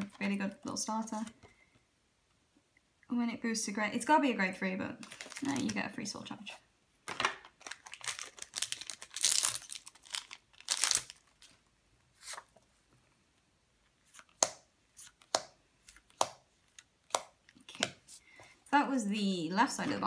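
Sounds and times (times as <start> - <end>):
cards rustling and sliding: 7.1 - 12.7, 13.9 - 18.6.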